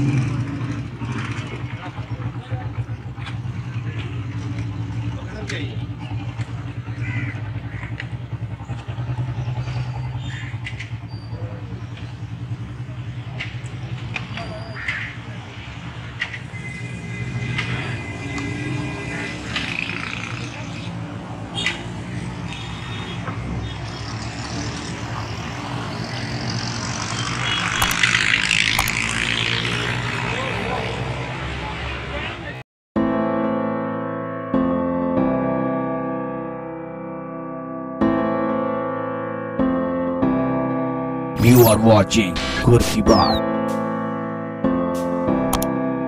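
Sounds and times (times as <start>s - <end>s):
motorcycle engines running: 0.0s - 32.6s
engine drone: 23.4s - 31.4s, 41.4s - 43.9s
sharp click: 27.8s - 28.1s, 28.8s - 29.0s, 45.4s - 45.7s
faint voices: 41.4s - 43.4s.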